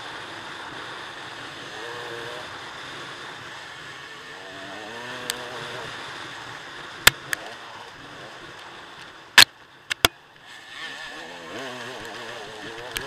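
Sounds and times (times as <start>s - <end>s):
dirt bike engine running: 0.0s - 13.0s
sharp click: 9.4s - 10.2s.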